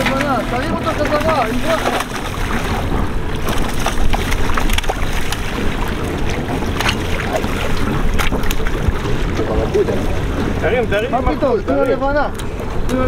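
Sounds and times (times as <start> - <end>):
fish thrashing and splashing: 0.0 - 11.1
water washing against hull: 0.0 - 13.0
wind buffeting microphone: 0.0 - 13.0.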